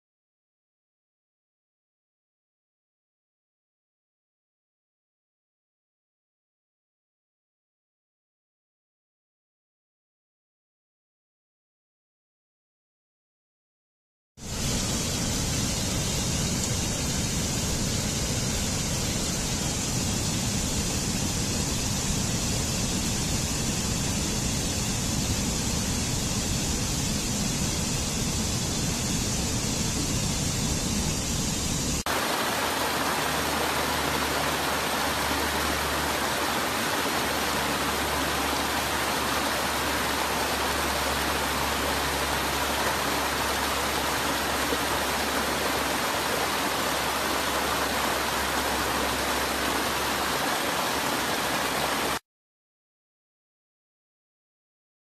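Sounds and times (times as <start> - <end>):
stream rushing over boulders: 31.9 - 52.2
brook spilling over rock ledges: 32.1 - 52.2.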